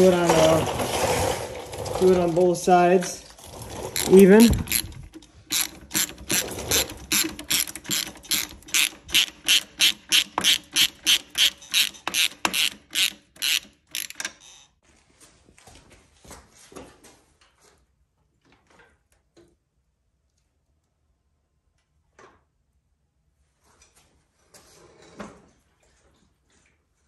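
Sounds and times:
socket ratchet clicking: 0:04.0 - 0:14.7.

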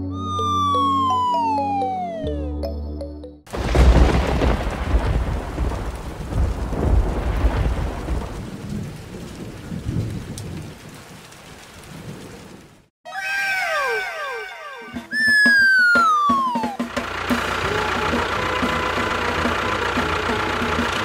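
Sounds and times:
thunder rumbling: 0:03.5 - 0:12.8
rain: 0:03.5 - 0:12.9, 0:17.0 - 0:21.0.

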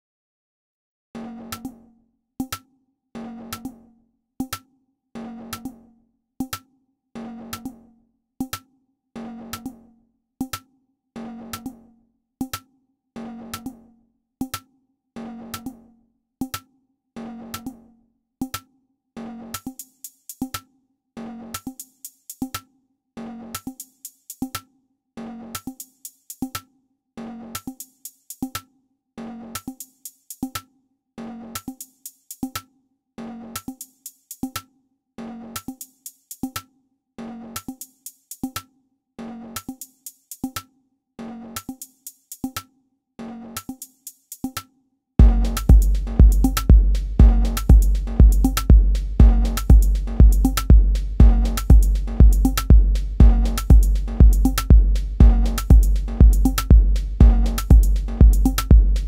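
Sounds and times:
hi-hat ticks: 0:19.6 - 0:20.6, 0:21.6 - 0:22.7, 0:23.6 - 0:24.6, 0:25.6 - 0:26.7, 0:27.6 - 0:28.6, 0:29.6 - 0:30.7, 0:31.6 - 0:32.6, 0:33.6 - 0:34.6, 0:35.6 - 0:36.7, 0:37.6 - 0:38.7, 0:39.6 - 0:40.7, 0:41.6 - 0:42.7, 0:43.6 - 0:44.6, 0:45.2 - 0:59.0
drum machine beat: 0:25.6 - 0:26.6, 0:27.6 - 0:28.6, 0:29.6 - 0:30.6, 0:31.6 - 0:32.6, 0:33.6 - 0:34.6, 0:35.6 - 0:36.6, 0:37.6 - 0:38.6, 0:39.6 - 0:40.6, 0:41.6 - 0:42.6, 0:43.6 - 0:44.6, 0:45.2 - 0:59.0.

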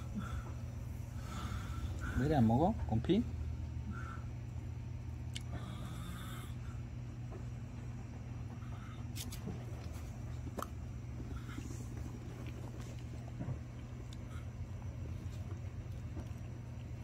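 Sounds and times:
steady low hum: 0:00.0 - 0:17.0
dog chewing: 0:09.0 - 0:17.0.

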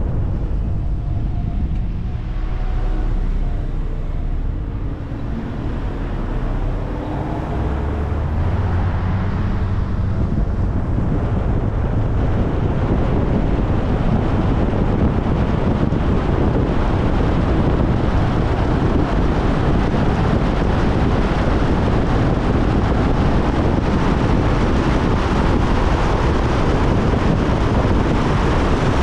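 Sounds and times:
tyre and road noise: 0:00.0 - 0:29.0
wind buffeting microphone: 0:00.0 - 0:29.0.

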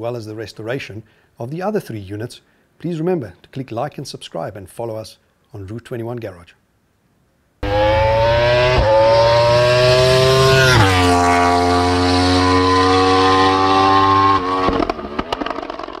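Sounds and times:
vehicle engine revving: 0:07.6 - 0:15.8.

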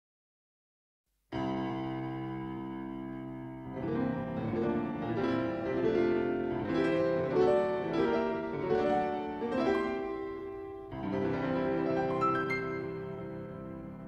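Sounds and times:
piano background music: 0:01.4 - 0:14.0.

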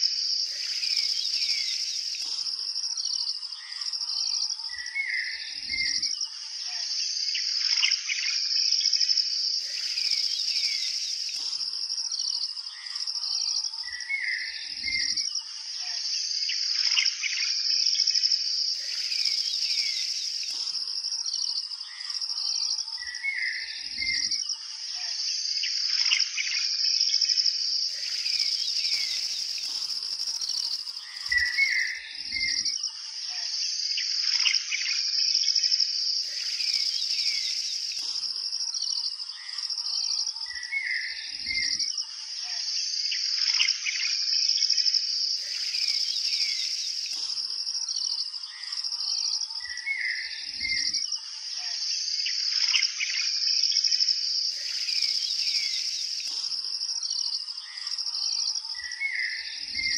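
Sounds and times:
birds chirping: 0:00.0 - 0:02.6, 0:09.6 - 0:13.2, 0:18.7 - 0:22.3, 0:27.9 - 0:32.7, 0:36.2 - 0:39.6, 0:45.4 - 0:48.7, 0:54.5 - 0:59.9
insects buzzing: 0:00.0 - 0:59.9.

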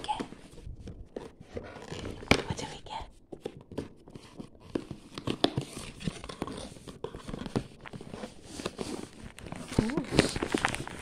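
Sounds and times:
paper wrapping crinkling: 0:03.6 - 0:11.0.

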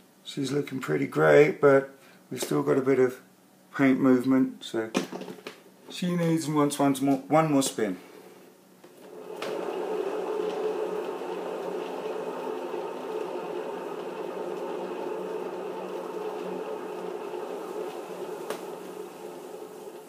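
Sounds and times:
turntable whirring: 0:08.8 - 0:20.0.

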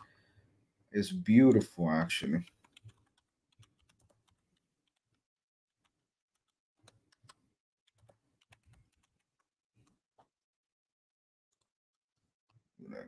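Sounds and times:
typing on computer keyboard: 0:02.5 - 0:05.1, 0:05.8 - 0:09.9.

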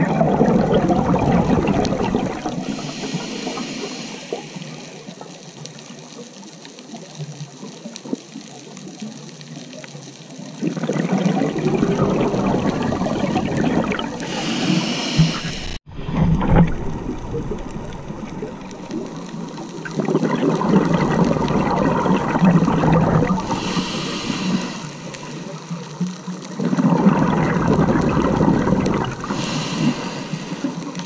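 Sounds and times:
bubbly regulator exhalations: 0:00.0 - 0:04.8, 0:10.6 - 0:19.1, 0:19.9 - 0:25.6, 0:26.6 - 0:31.0
regulator inhalation hiss: 0:02.6 - 0:05.1, 0:14.2 - 0:15.8, 0:23.4 - 0:25.6, 0:29.2 - 0:31.0.

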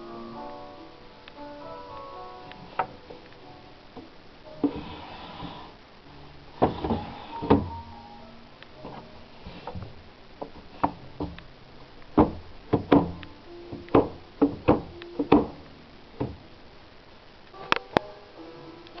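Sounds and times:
wooden drawer knocks and rattles: 0:06.6 - 0:07.8, 0:12.2 - 0:15.6, 0:16.2 - 0:16.4.

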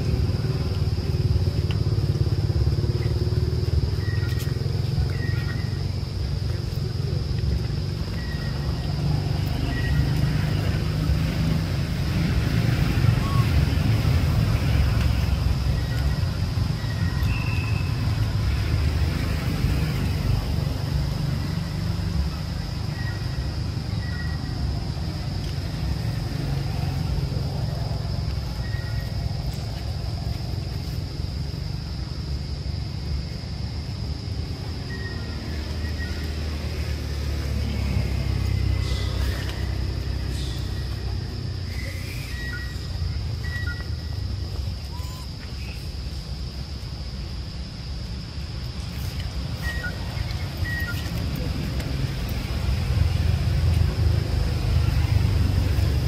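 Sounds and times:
low outdoor rumble: 0:00.0 - 0:56.0
high hiss: 0:34.5 - 0:53.8.

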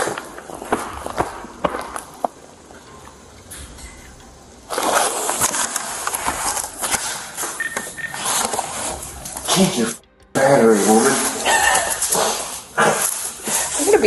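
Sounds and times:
clothing rubbing against a camera: 0:04.7 - 0:09.7.

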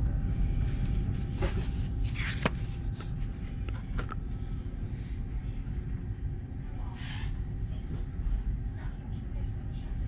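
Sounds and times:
paper menu rustling: 0:00.8 - 0:04.2.

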